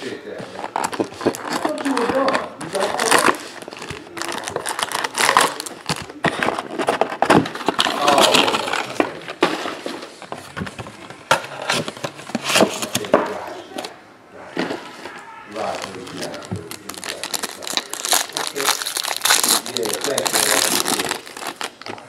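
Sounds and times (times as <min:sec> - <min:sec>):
cardboard and foil rustling: 0:00.0 - 0:22.0
packs clicking and knocking on table: 0:00.4 - 0:13.9.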